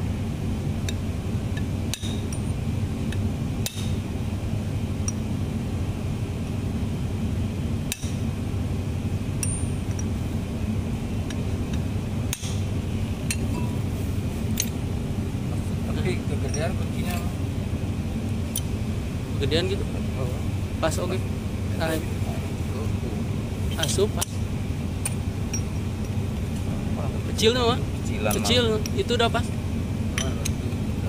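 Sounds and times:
steady low hum: 0.0s - 31.0s
sharp metallic clinks and taps: 0.8s - 4.0s, 5.0s - 5.2s, 9.4s - 10.2s, 13.2s - 13.8s, 14.5s - 14.8s, 16.4s - 17.3s, 25.0s - 26.2s, 30.1s - 30.8s.

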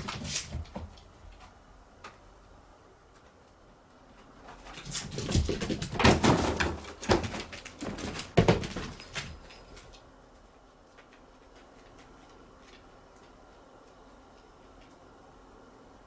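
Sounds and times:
cat scrambling on floor mat: 0.0s - 1.1s, 4.4s - 9.4s.

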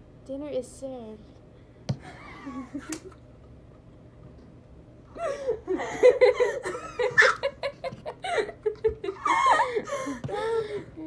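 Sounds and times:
girls laughing: 2.0s - 3.2s, 5.1s - 11.0s.

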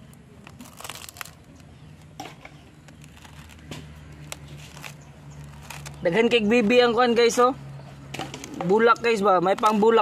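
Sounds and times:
knife cutting through roots: 0.4s - 7.4s.

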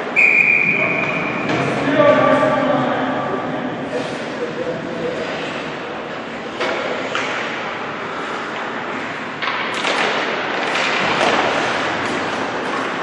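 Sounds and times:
noisy rink background: 0.0s - 13.0s
sticks and puck knocking: 9.4s - 13.0s
skate blades scraping ice: 9.8s - 13.0s.

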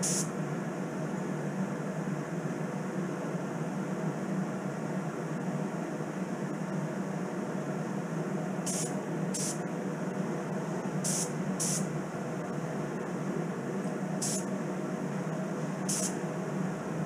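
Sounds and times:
spray gun hissing: 0.0s - 0.3s, 8.7s - 9.6s, 11.0s - 11.9s, 14.2s - 14.5s, 15.9s - 16.2s
ventilation fan rushing: 0.0s - 17.0s.

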